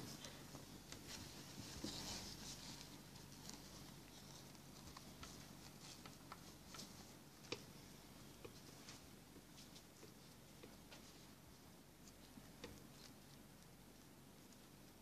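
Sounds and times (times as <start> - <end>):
fabric rustling: 0.0 - 7.4.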